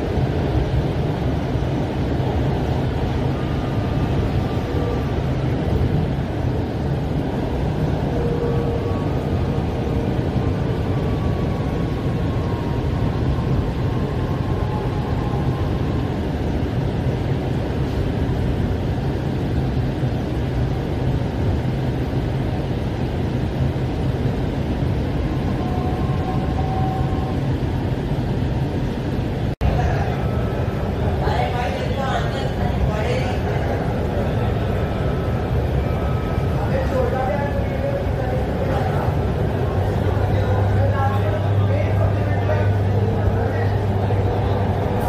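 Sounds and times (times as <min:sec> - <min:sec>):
train rumble: 0:00.0 - 0:45.0
faint whining tones: 0:22.5 - 0:45.0.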